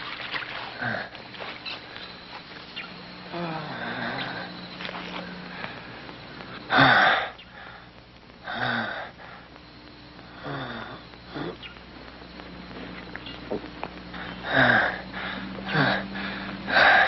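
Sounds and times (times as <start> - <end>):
man breathing hard and groaning: 3.3 - 5.8, 10.3 - 11.6, 14.1 - 17.0.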